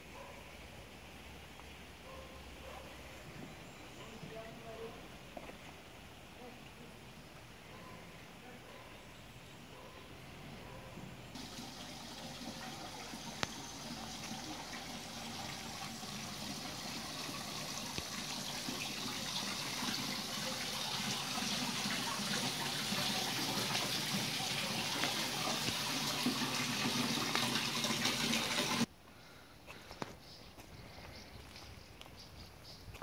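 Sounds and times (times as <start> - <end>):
running water rushing: 11.4 - 28.9.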